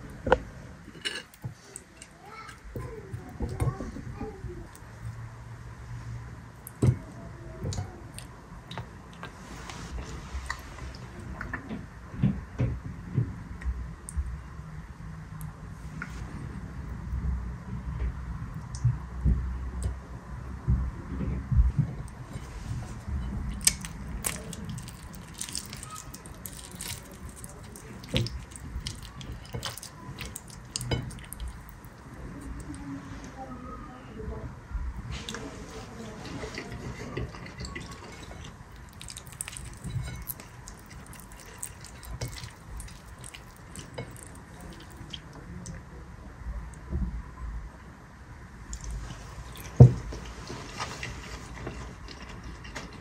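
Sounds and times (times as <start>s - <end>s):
wet squishes of sauce: 22.0s - 32.9s, 35.0s - 45.9s, 48.7s - 53.0s
bone cracks and clicks: 23.5s - 32.0s, 37.6s - 45.2s
fingers tearing cooked chicken: 23.5s - 32.8s, 36.4s - 45.3s.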